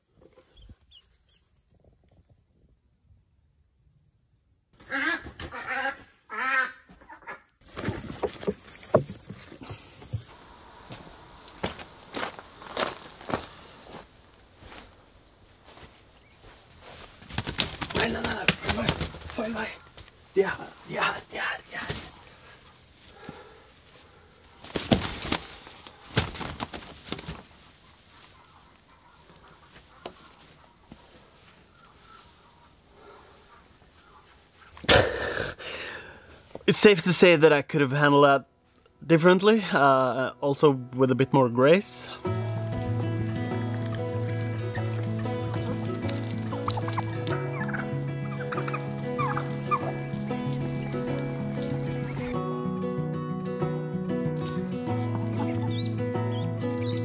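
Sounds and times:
duck quacking harshly: 0:04.8 - 0:07.4
wings flapping in hay: 0:07.6 - 0:10.2, 0:17.1 - 0:19.5, 0:24.6 - 0:28.3
straw rustling: 0:07.6 - 0:10.3, 0:11.4 - 0:32.5, 0:42.4 - 0:52.2.

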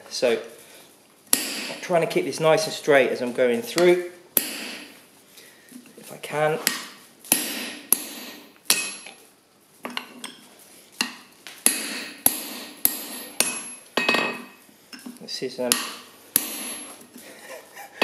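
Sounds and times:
hammer striking metal punch: 0:01.3 - 0:01.8, 0:03.8 - 0:04.9, 0:06.6 - 0:09.1, 0:11.0 - 0:14.5, 0:15.7 - 0:16.9.

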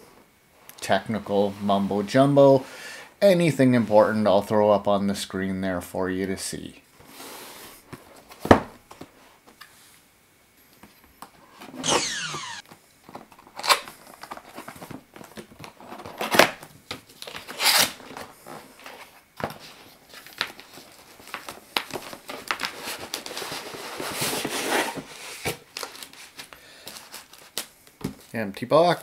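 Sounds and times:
tape ripping: 0:11.8 - 0:12.6, 0:13.6 - 0:13.9, 0:17.2 - 0:18.1
plastic crinkling and rustling: 0:12.7 - 0:28.5.

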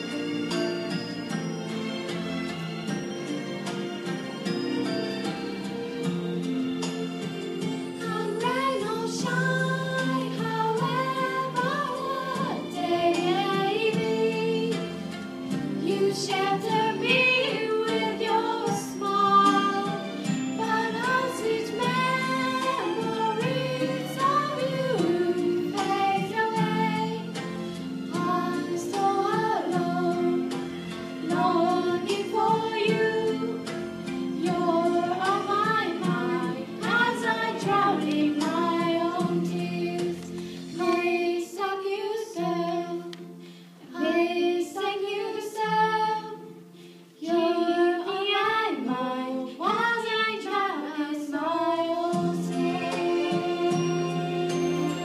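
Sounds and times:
instrumental accompaniment: 0:00.0 - 0:41.3, 0:51.4 - 0:55.0
woman singing into a microphone: 0:34.4 - 0:43.1, 0:47.2 - 0:55.0.

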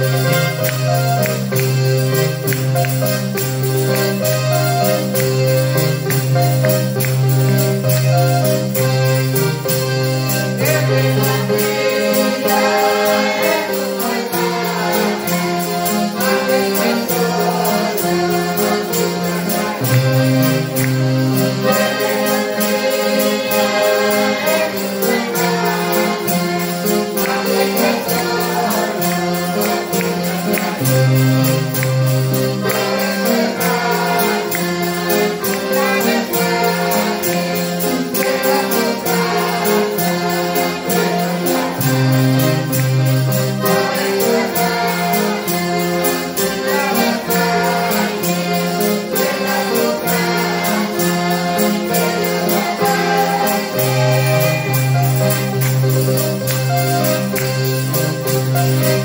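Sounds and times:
piano accordion: 0:00.0 - 0:59.0
men singing: 0:10.4 - 0:20.6, 0:21.3 - 0:31.5, 0:32.4 - 0:42.2, 0:43.6 - 0:55.6.

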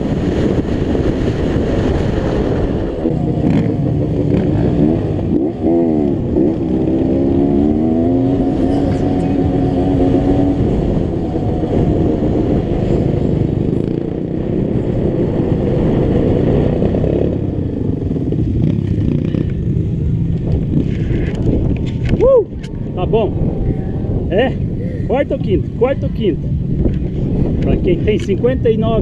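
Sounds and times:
dirt bike engine revving: 0:02.2 - 0:14.6.

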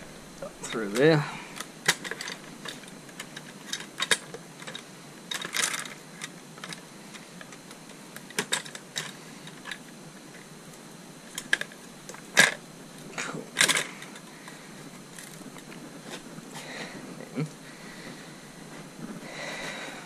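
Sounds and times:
plastic and metal parts clicking: 0:00.9 - 0:10.5, 0:11.3 - 0:12.6, 0:13.5 - 0:16.2.

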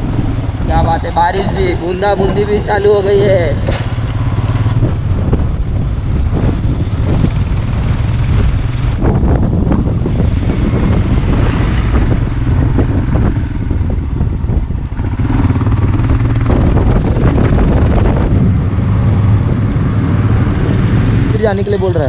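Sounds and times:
motorcycle engine running: 0:00.0 - 0:21.9.

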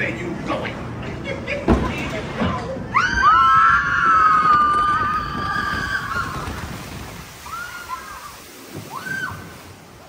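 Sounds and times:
riders screaming: 0:02.9 - 0:06.8, 0:07.4 - 0:09.6.

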